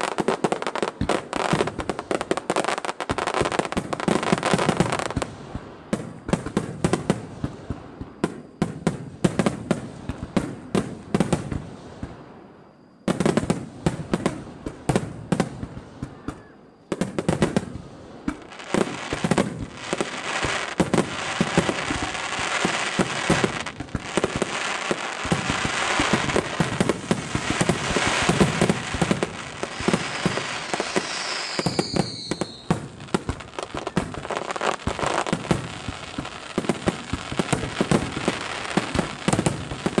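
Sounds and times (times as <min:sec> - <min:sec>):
firework crackle: 0:00.0 - 0:12.4, 0:16.9 - 0:40.0
firework bangs: 0:13.1 - 0:40.0.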